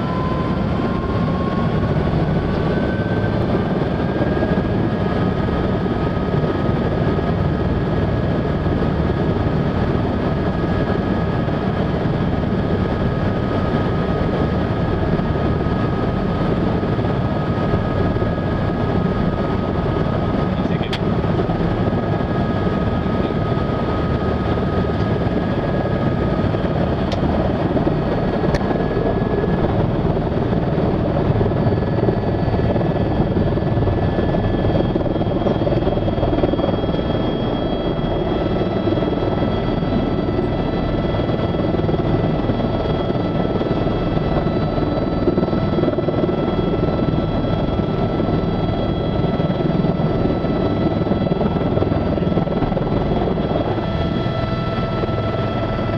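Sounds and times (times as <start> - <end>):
helicopter engine and rotor: 0.0 - 55.9.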